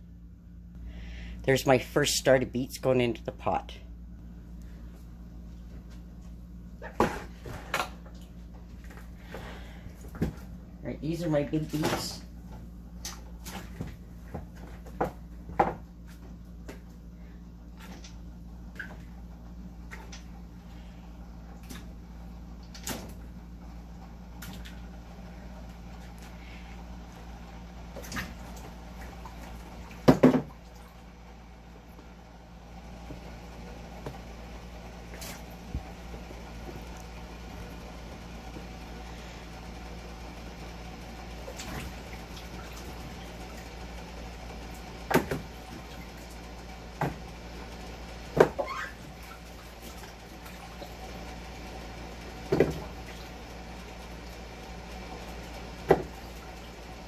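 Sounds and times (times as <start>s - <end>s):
low hum: 0.0s - 57.0s
water sloshing in a sink: 24.3s - 31.1s, 34.9s - 38.8s, 41.2s - 51.6s.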